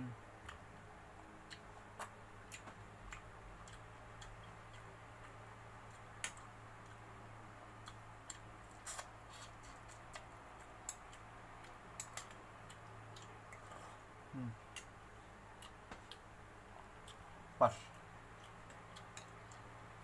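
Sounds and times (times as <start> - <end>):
steady low hum: 0.0 - 20.0
eating sounds: 1.4 - 7.1.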